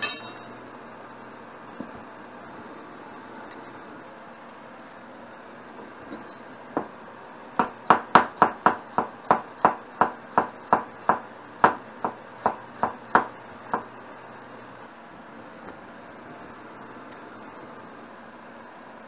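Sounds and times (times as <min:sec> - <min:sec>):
knife chopping on wooden board: 0:07.6 - 0:13.9.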